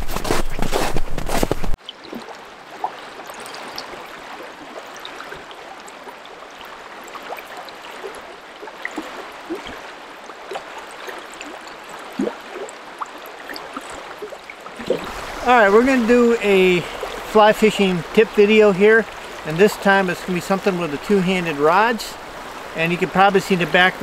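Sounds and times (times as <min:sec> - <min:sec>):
boots crunching through snow: 0:00.0 - 0:01.8
small plinks and splashes: 0:01.8 - 0:15.4
river rushing and gurgling: 0:01.8 - 0:24.0.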